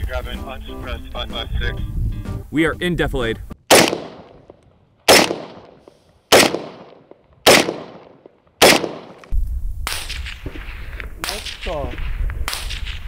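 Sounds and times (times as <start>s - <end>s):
rifle shots echoing: 3.7s - 11.8s.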